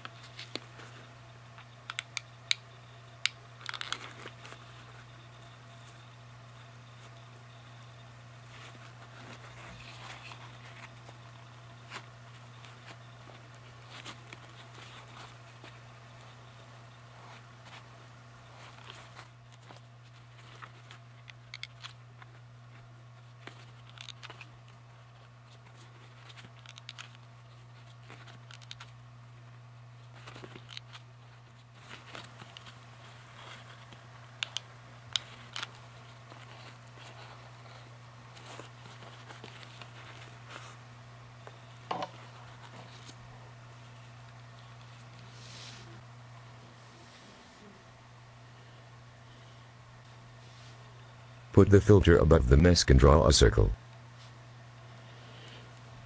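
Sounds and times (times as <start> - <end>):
paper crinkling and clicks: 0.0 - 40.8
low electrical hum: 0.0 - 56.0.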